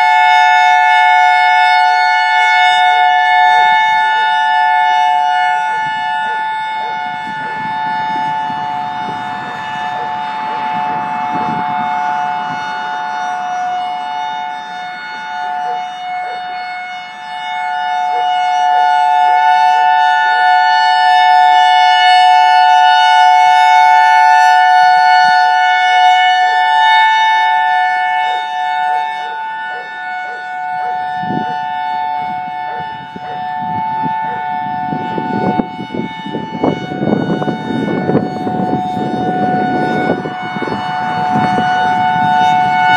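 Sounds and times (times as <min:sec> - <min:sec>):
two-tone warning siren: 0:00.0 - 0:42.9.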